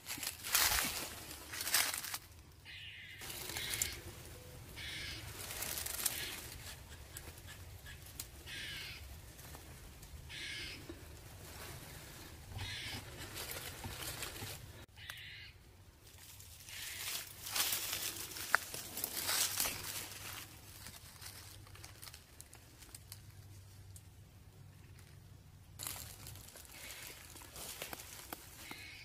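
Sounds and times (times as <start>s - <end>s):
crow cawing: 2.6s - 9.2s, 10.2s - 11.1s, 12.5s - 14.0s, 15.0s - 15.6s, 16.7s - 18.5s, 25.8s - 29.0s.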